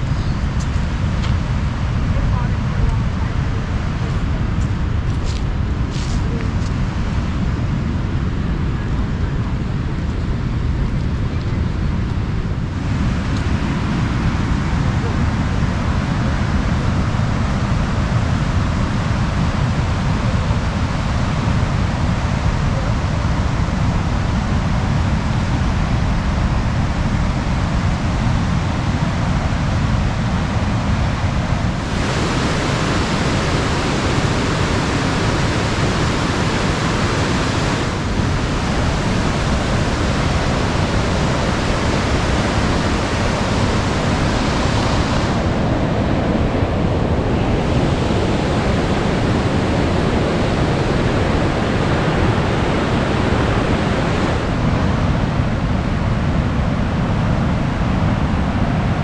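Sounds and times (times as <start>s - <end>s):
waterfall rushing: 30.3s - 55.6s.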